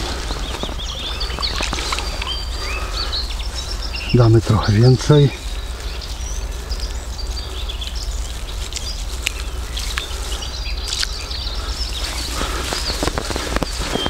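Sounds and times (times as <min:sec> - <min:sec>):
small birds chirping: 0:00.0 - 0:14.0
steady low rumble: 0:00.0 - 0:14.0
hand kneading dry groundbait: 0:07.8 - 0:14.0.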